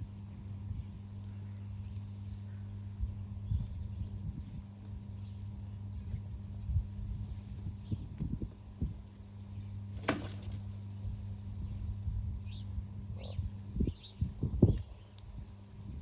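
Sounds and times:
steady low hum: 0.0s - 16.0s
small birds chirping: 0.3s - 6.5s, 7.2s - 8.1s, 11.5s - 15.3s.

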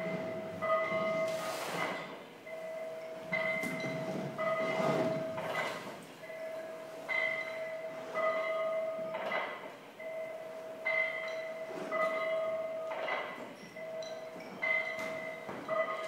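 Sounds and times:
bell-like ringing tone: 0.0s - 16.0s.

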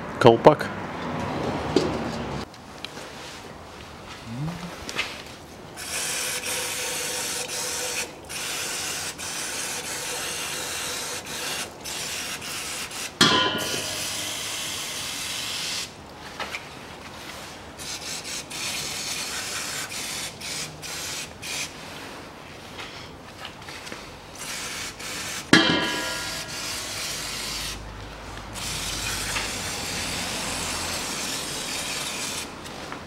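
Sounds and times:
aerosol spray can hissing: 17.8s - 21.7s, 24.4s - 27.8s, 28.6s - 32.5s.

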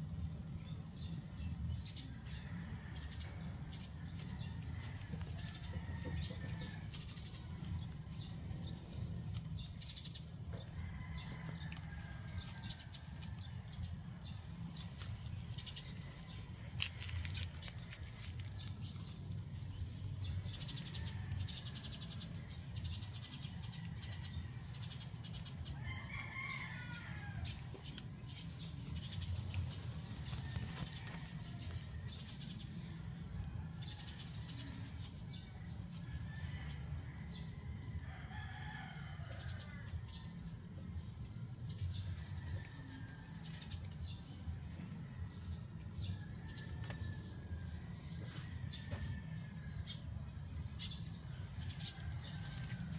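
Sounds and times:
low outdoor rumble: 0.0s - 52.9s
rooster crowing: 4.4s - 7.0s, 25.7s - 27.8s, 36.2s - 39.9s.

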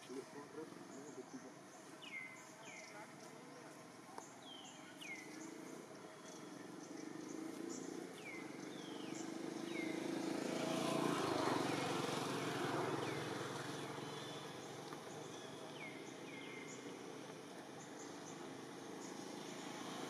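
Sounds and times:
motor vehicle engine approaching: 5.1s - 20.0s.

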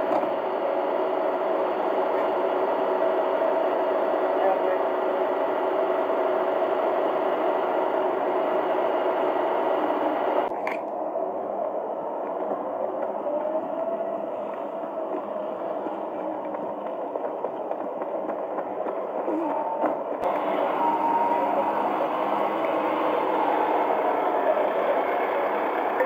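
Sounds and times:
lorry engine drone with whine: 0.0s - 26.0s.

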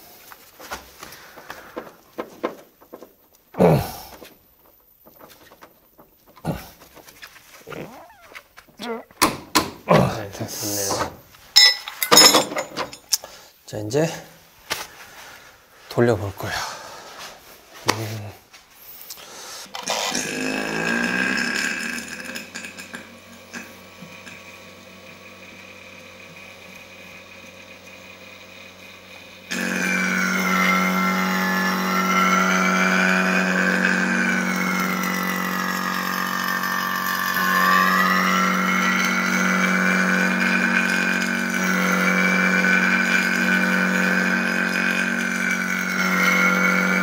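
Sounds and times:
vacuum pump running: 19.7s - 47.0s.

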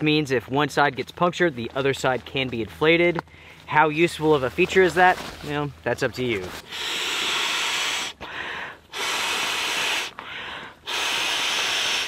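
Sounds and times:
person inhaling: 3.3s - 3.7s, 6.6s - 12.0s
breath blowing into valve: 6.6s - 12.0s.

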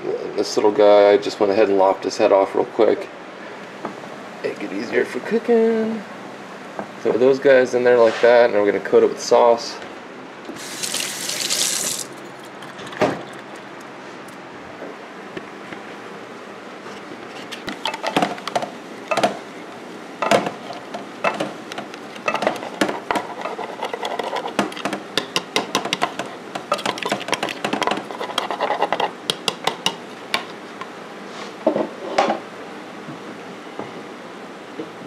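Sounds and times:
utensil scraping a bowl: 22.1s - 24.8s, 26.0s - 29.2s.

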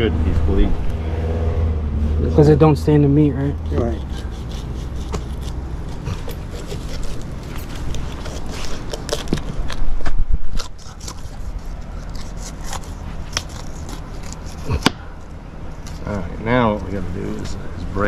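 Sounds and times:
knife cutting fish flesh and bone: 3.6s - 9.8s, 10.5s - 15.1s.

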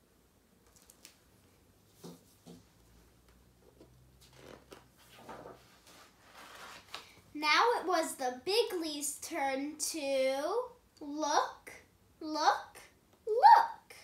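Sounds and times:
book pages flipping: 0.7s - 1.2s, 3.7s - 7.2s.

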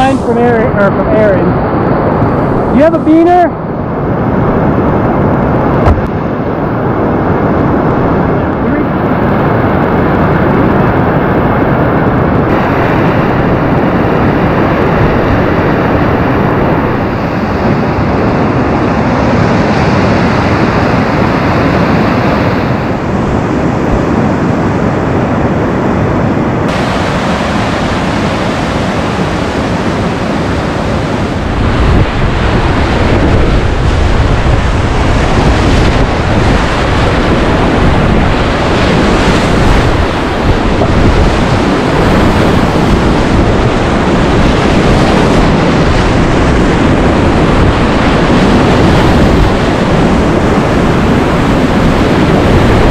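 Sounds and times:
river rapids rushing: 0.0s - 1.4s, 12.5s - 14.0s, 26.7s - 46.2s.

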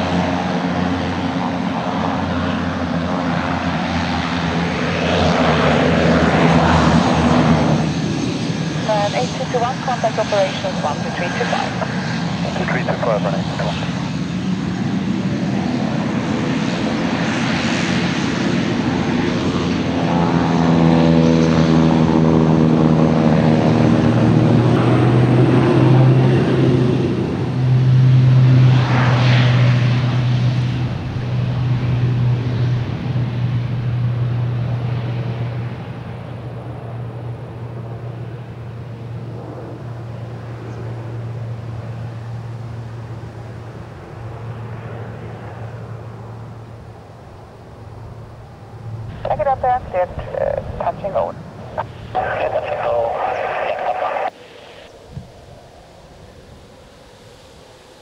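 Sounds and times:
turboprop aircraft taking off: 0.0s - 58.0s.

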